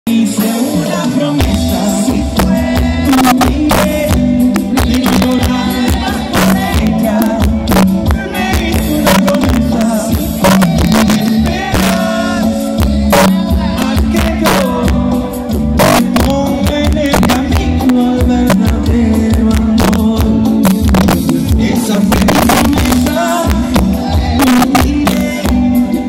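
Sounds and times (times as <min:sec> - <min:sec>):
live band playing: 0:00.1 - 0:26.0
person singing: 0:00.1 - 0:26.0
steady drum beat: 0:00.2 - 0:26.0.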